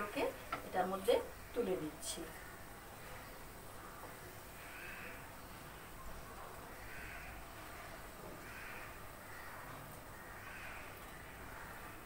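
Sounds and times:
crow cawing: 0:02.3 - 0:03.3, 0:04.6 - 0:05.3, 0:06.7 - 0:12.0.

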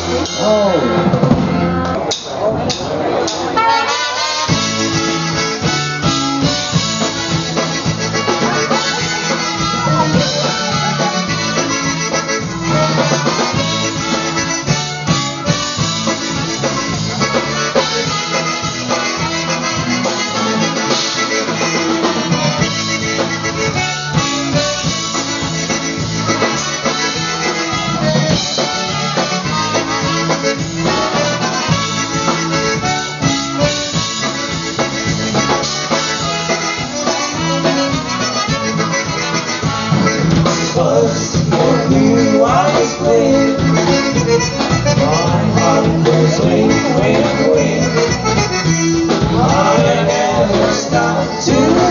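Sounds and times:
polka band playing: 0:00.0 - 0:51.9
trumpets: 0:03.4 - 0:41.0.

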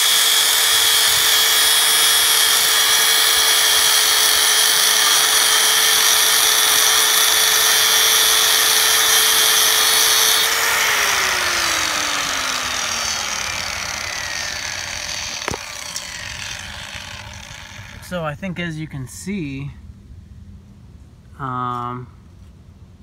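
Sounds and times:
angle grinder grinding metal: 0:00.0 - 0:18.2.

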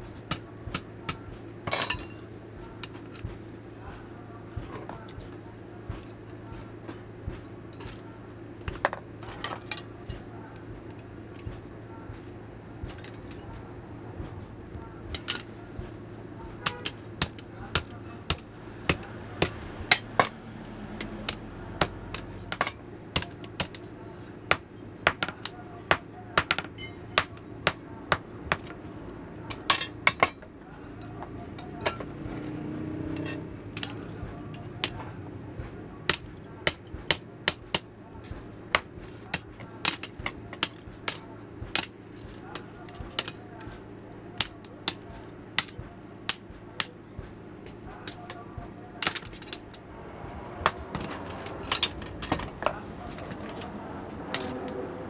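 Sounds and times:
hammer striking iron on anvil: 0:00.0 - 0:08.0, 0:14.2 - 0:43.8, 0:44.4 - 0:53.3, 0:54.3 - 0:54.8.

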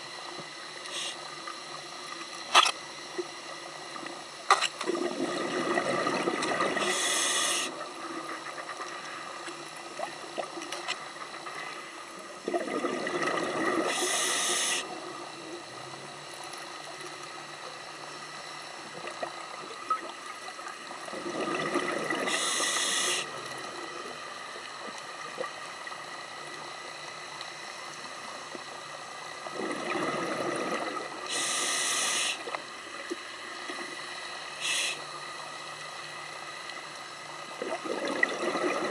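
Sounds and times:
regulator hiss: 0:00.0 - 0:04.4, 0:05.7 - 0:12.4, 0:13.7 - 0:21.1, 0:22.1 - 0:37.6
bubbling: 0:04.8 - 0:07.0, 0:12.4 - 0:14.2, 0:21.0 - 0:22.6, 0:29.4 - 0:31.2, 0:37.5 - 0:38.9
scuba regulator breathing: 0:06.8 - 0:07.8, 0:13.9 - 0:14.9, 0:22.3 - 0:23.3, 0:31.3 - 0:32.5, 0:34.6 - 0:35.1.

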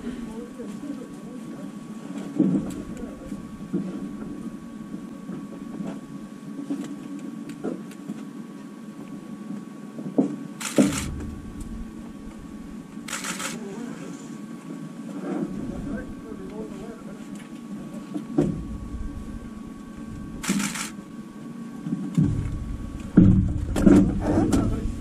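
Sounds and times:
knocks and thumps in cabin: 0:10.8 - 0:13.0, 0:18.3 - 0:20.4, 0:22.0 - 0:25.0.

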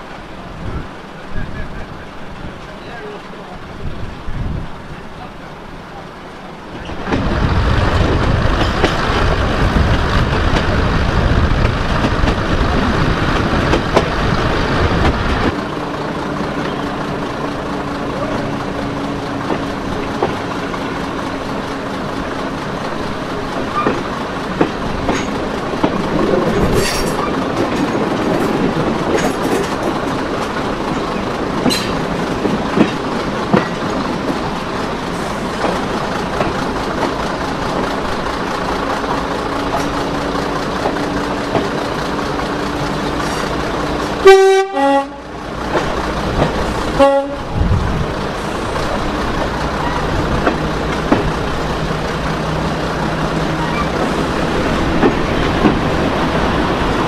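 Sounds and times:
train running rumble: 0:00.0 - 0:57.0
wheels clicking over rails: 0:11.5 - 0:44.2, 0:45.5 - 0:57.0.

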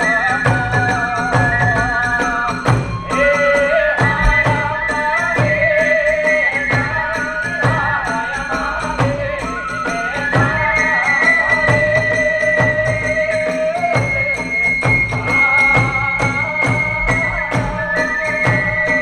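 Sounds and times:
drum strikes: 0:00.0 - 0:09.6
bamboo flute long high notes: 0:09.4 - 0:17.4.

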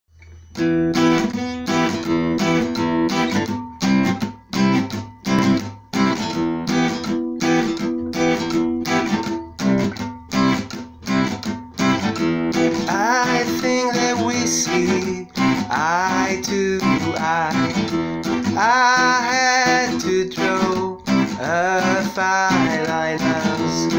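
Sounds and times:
acoustic guitar strumming chords: 0:00.2 - 0:23.9
man singing: 0:12.7 - 0:23.9.

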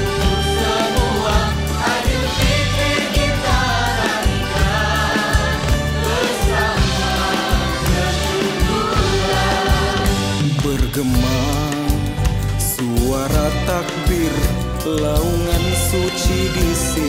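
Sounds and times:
choir singing: 0:00.0 - 0:10.4
band with keyboards and drums: 0:00.0 - 0:17.0.

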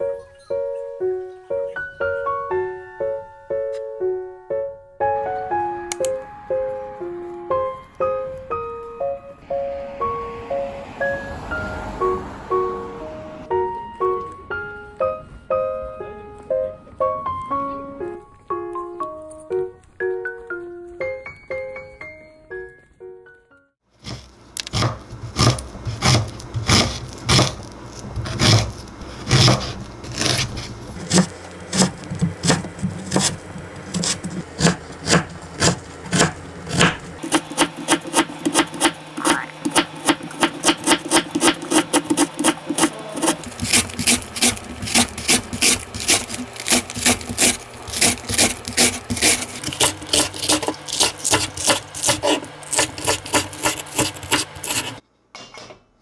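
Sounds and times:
knife chopping on wooden board: 0:24.0 - 0:27.6, 0:28.2 - 0:55.0.

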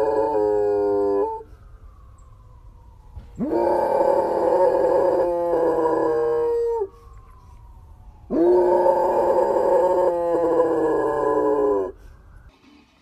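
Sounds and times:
dog howling: 0:00.0 - 0:01.5, 0:03.4 - 0:07.0, 0:08.3 - 0:12.0
fire station siren: 0:00.0 - 0:12.6.

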